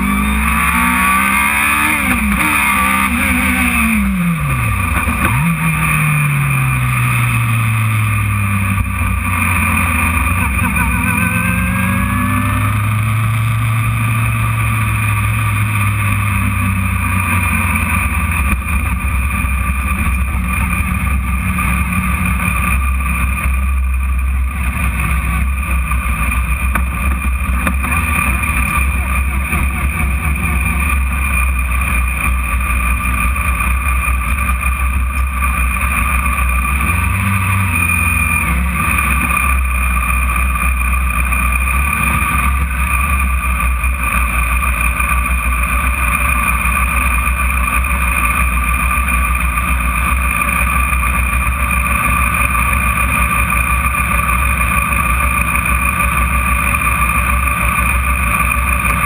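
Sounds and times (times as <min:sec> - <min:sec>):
race car engine: 0:00.0 - 0:59.0.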